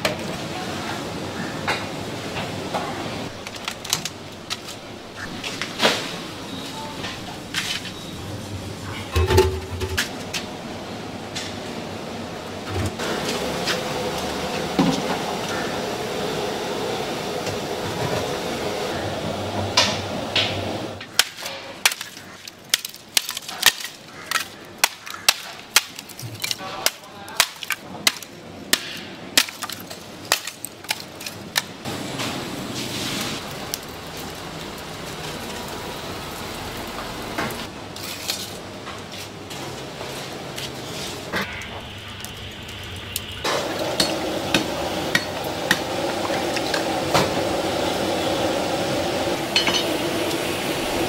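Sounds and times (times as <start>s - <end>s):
food preparation clatter: 8.8s - 10.5s.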